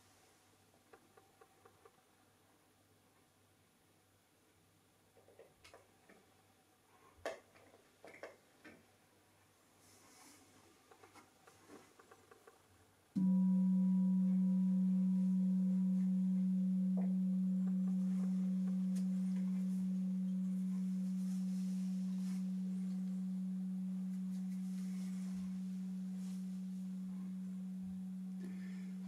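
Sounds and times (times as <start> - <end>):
singing bowl ringing: 13.2 - 29.0.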